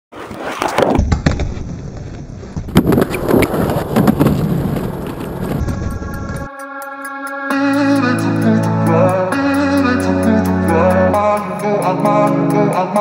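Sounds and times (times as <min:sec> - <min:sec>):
skateboard wheels rolling: 0:00.2 - 0:06.5.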